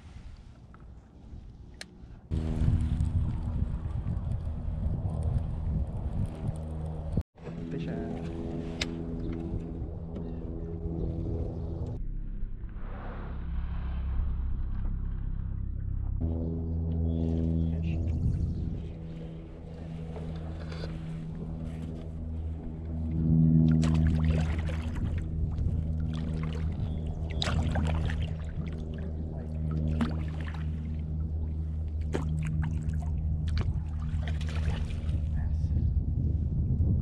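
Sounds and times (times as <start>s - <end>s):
water lapping around kayak: 0.0s - 10.6s, 17.0s - 35.8s
low hum of held tones: 0.0s - 37.0s
sharp water splashes: 23.7s - 25.3s, 25.9s - 29.0s, 29.6s - 31.0s, 32.0s - 35.3s.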